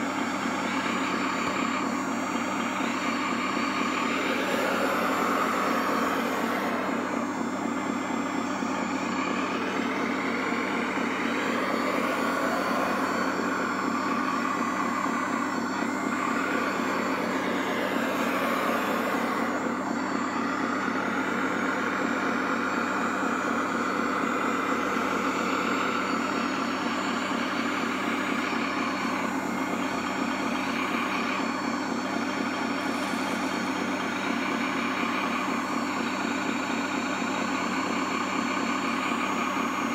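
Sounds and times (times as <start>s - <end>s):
electronic diesel engine sound: 0.0s - 39.9s
motor whine: 0.0s - 39.9s.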